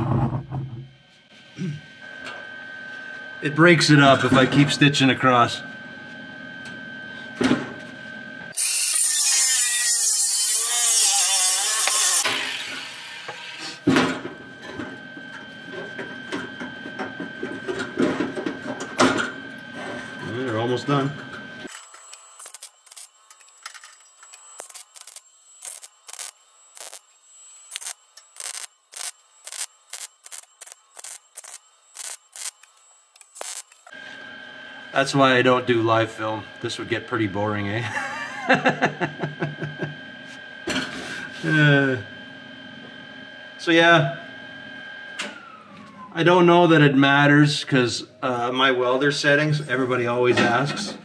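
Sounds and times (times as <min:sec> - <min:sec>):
faint steady whine: 0:14.4 - 0:37.7
welder hissing: 0:21.8 - 0:23.2, 0:24.3 - 0:34.0.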